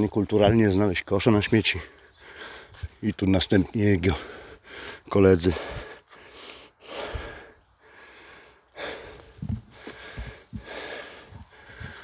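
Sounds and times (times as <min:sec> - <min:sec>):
person breathing heavily: 0:01.8 - 0:03.0, 0:04.0 - 0:12.0
low thuds: 0:09.2 - 0:12.0.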